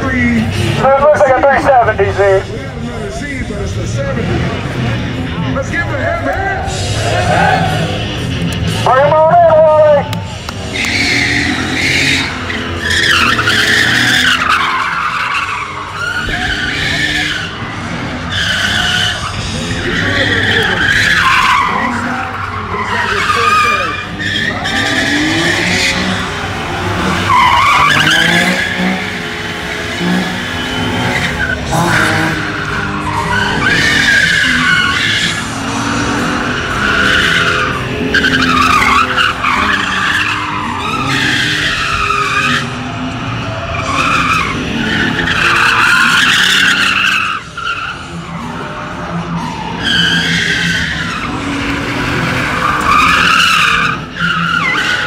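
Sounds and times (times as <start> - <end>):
car engine revving: 0.0 - 55.0
tyres squealing: 5.4 - 55.0.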